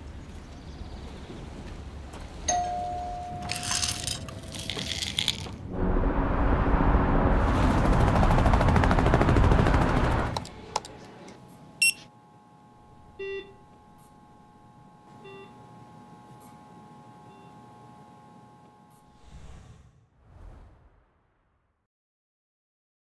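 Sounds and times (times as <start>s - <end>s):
tablets rattling into plastic bottle: 3.4s - 5.6s
faint electronic hum: 10.4s - 19.2s
short monitor beeps: 11.8s - 12.1s, 13.2s - 13.6s.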